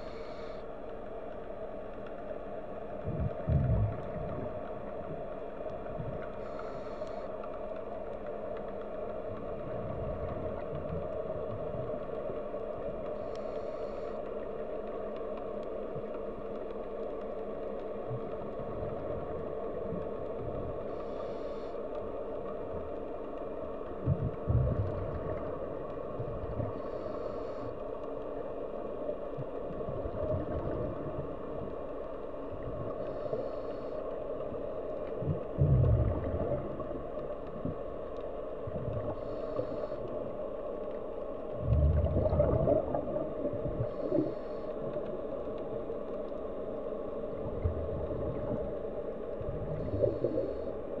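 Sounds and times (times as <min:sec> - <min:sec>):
underwater noise: 0:00.0 - 0:51.0
exhaled air bubbling: 0:02.8 - 0:07.2, 0:23.8 - 0:27.8, 0:29.3 - 0:51.0.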